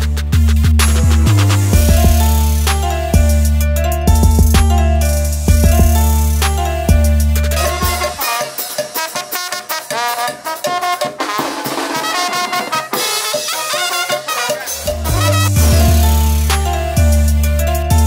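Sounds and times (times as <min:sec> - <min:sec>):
deep bass line recorded music: 0:00.0 - 0:08.2, 0:14.7 - 0:18.0
brass band playing: 0:00.6 - 0:18.0.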